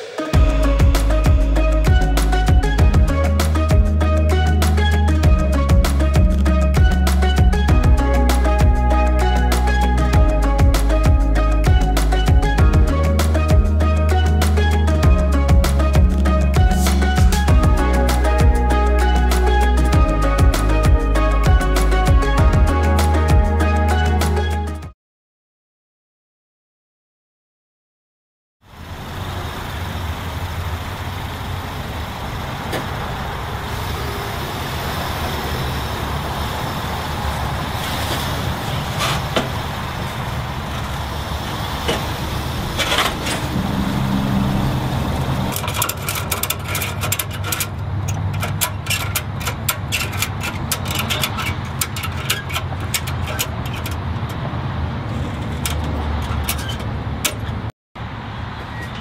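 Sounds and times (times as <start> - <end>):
vehicle driving at highway speed: 28.6 - 59.0
sharp ticks and knocks: 45.5 - 54.5, 55.1 - 57.7.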